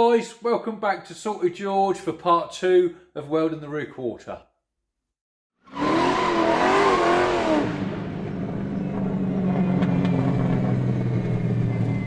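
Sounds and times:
car engine starting and idling: 7.4 - 12.0.

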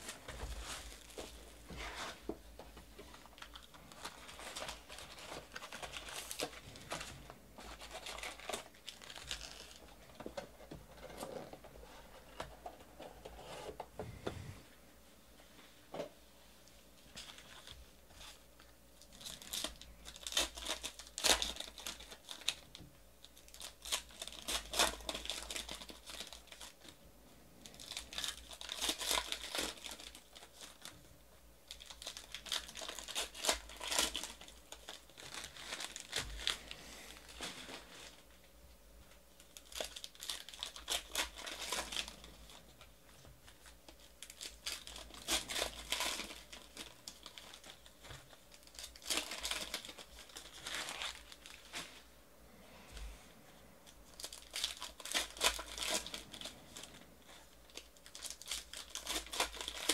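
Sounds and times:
card pack wrappers tearing: 3.2 - 10.2, 19.0 - 27.0, 27.6 - 30.9, 31.6 - 38.2, 39.4 - 51.8, 54.1 - 59.9.

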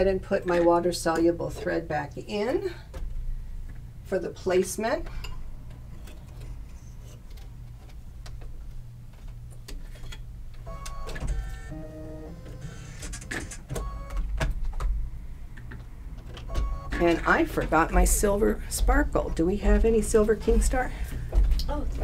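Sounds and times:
low steady hum: 14.0 - 22.0.

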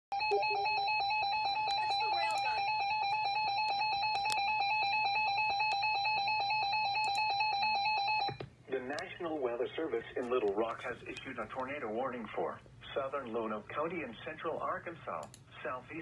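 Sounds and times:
loud steady alert tone: 0.1 - 8.2.

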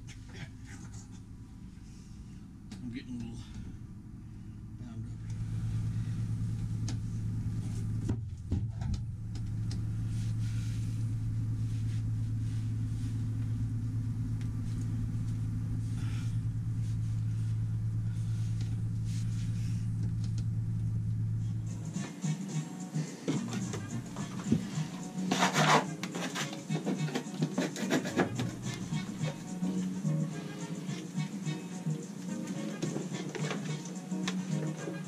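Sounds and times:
low machinery hum: 0.0 - 35.0
music: 21.6 - 35.0.

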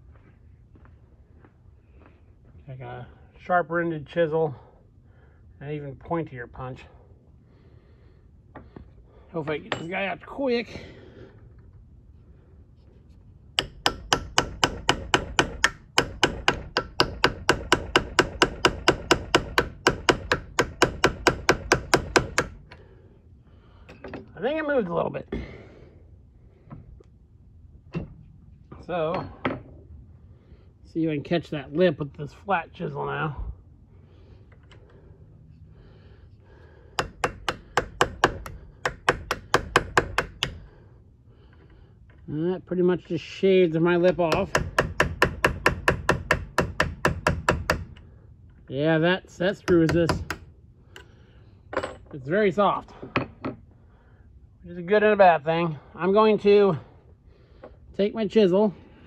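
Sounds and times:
hammer tapping steel punch: 9.7 - 10.0, 13.6 - 22.8, 37.0 - 40.6, 44.3 - 48.0, 49.6 - 51.1.

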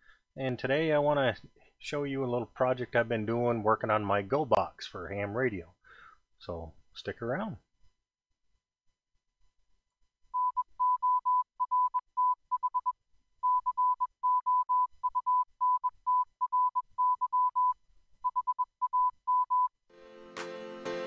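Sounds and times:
morse code beeps: 10.4 - 19.7.

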